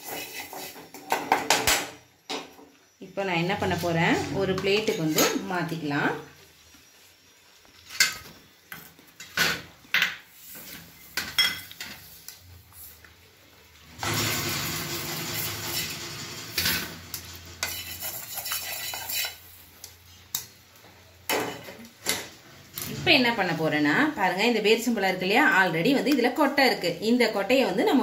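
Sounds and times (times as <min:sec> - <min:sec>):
spatula scraping pan: 0:00.0 - 0:01.2, 0:03.6 - 0:05.5, 0:14.2 - 0:19.8.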